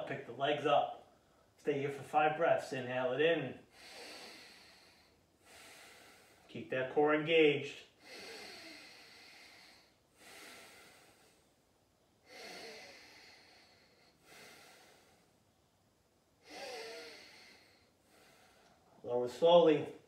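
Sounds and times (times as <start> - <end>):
person breathing slowly: 3.6 - 6.5, 7.9 - 11.6, 12.2 - 15.4, 16.4 - 19.0.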